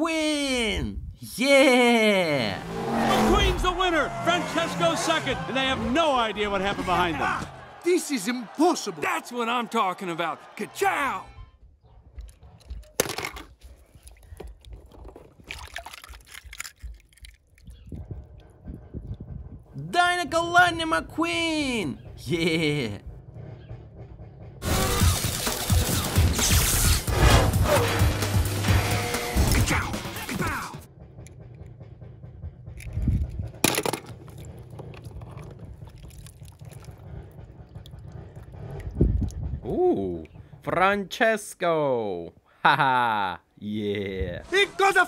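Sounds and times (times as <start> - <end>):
handling clicks and knocks: 12.1 - 17.6, 32.8 - 35.9
water splashing and dripping: 13.7 - 18.4, 34.1 - 39.6
low steady rumble: 30.9 - 40.8.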